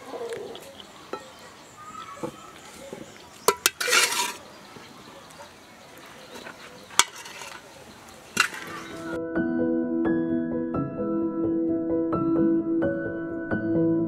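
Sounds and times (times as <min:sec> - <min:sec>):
spoon clinking and scraping plate: 0:03.4 - 0:04.5, 0:06.4 - 0:09.1
piano music: 0:08.8 - 0:14.0.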